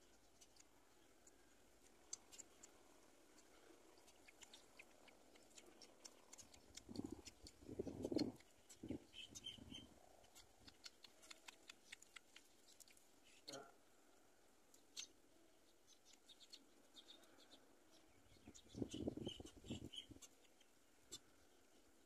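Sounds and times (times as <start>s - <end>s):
faint clicks: 0.3s - 8.8s, 10.2s - 13.0s.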